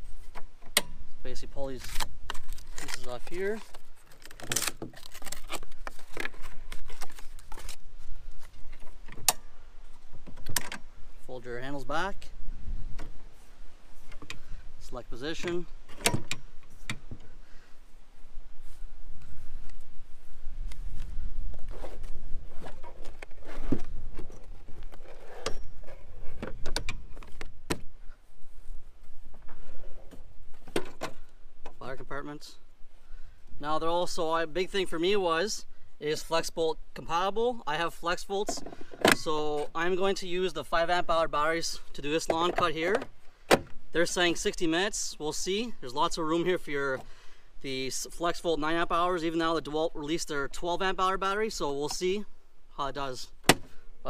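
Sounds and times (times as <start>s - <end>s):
cardboard rustling and scraping: 1.7s - 9.0s, 21.5s - 27.5s.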